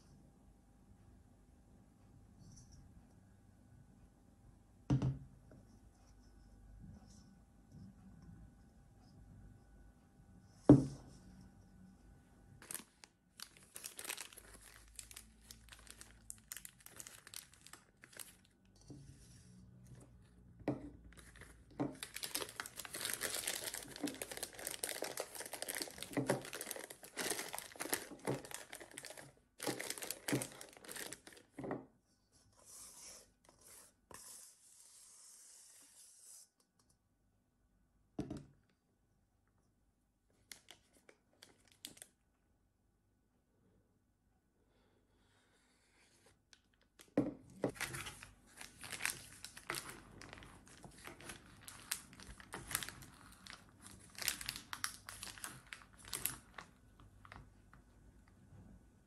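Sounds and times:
plastic bag crinkling: 12.6s - 18.5s, 21.1s - 31.6s, 47.7s - 57.4s.

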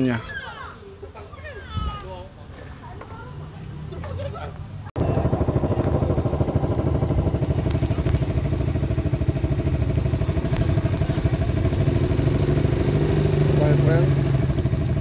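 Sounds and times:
small engine idling: 5.0s - 15.0s.

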